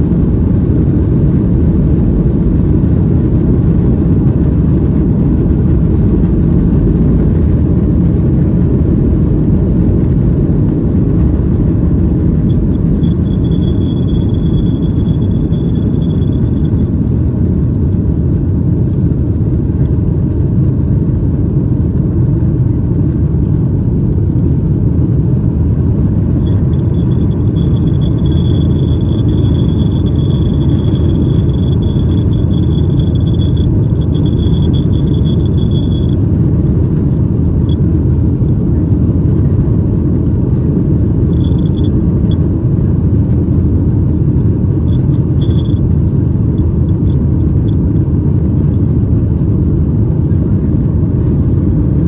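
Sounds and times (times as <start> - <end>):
jet engine rumble in cabin: 0.0 - 52.0
thin high whine: 11.2 - 17.2, 26.2 - 37.0, 41.0 - 42.5, 44.2 - 47.8.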